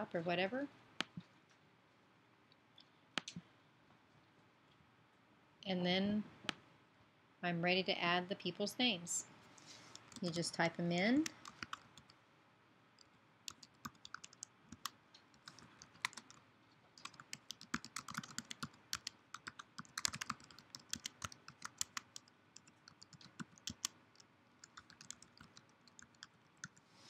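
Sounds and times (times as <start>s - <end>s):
keyboard typing: 9.9s - 10.4s, 11.2s - 12.2s, 13.5s - 16.4s, 17.0s - 26.8s.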